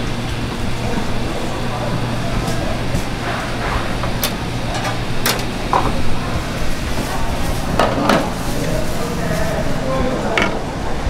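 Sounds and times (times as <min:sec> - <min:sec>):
steady low hum: 0:00.0 - 0:11.0
kitchen knocks and clicks: 0:04.0 - 0:06.0.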